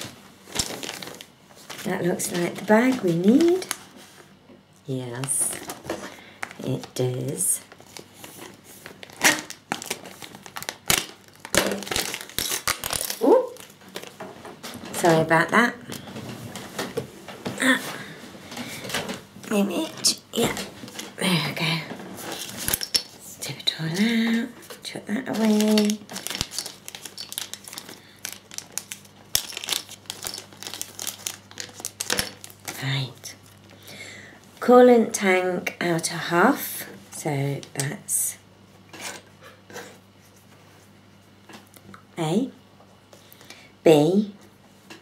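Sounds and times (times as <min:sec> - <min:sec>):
plastic bag crinkling and tearing: 0:00.0 - 0:04.0, 0:05.2 - 0:15.1, 0:22.2 - 0:33.7.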